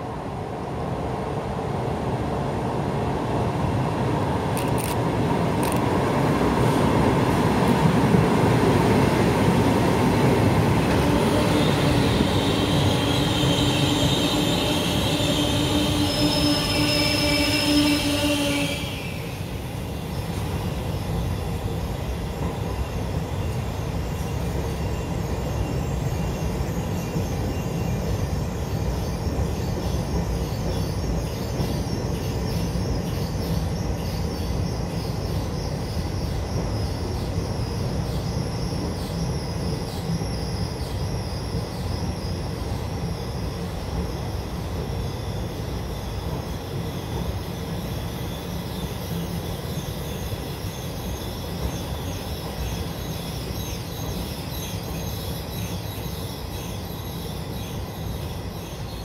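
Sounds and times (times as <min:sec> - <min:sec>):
train wheels rumbling on rails: 0:00.5 - 0:59.0.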